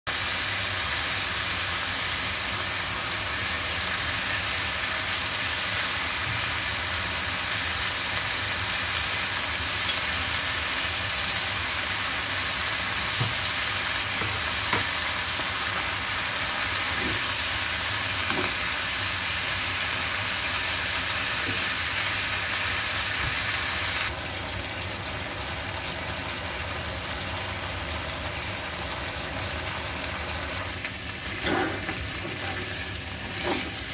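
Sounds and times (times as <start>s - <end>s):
ribs sizzling in oil: 0.1s - 33.9s.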